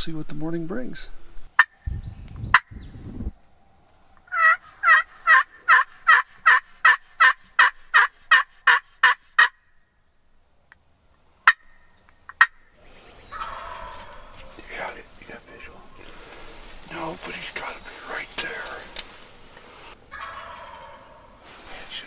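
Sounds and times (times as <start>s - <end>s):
turkey friction call hen yelps: 4.2s - 9.6s, 11.4s - 14.7s, 18.4s - 21.4s.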